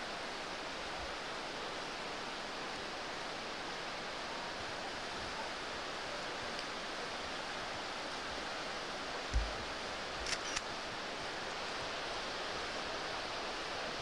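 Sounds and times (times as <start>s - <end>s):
small camera clicks: 10.2s - 10.7s.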